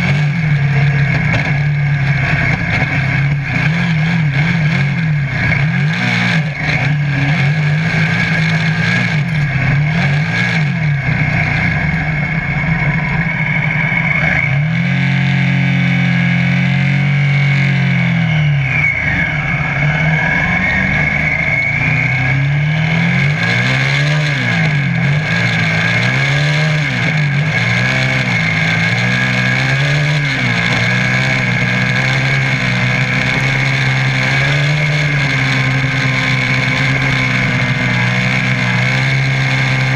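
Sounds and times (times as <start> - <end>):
buggy engine running hard: 0.0 - 39.9
steady high whine: 0.0 - 39.9.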